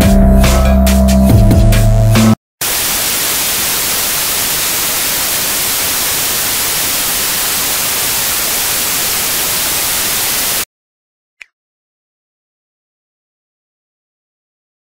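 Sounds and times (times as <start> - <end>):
television static hiss: 2.6 - 10.6.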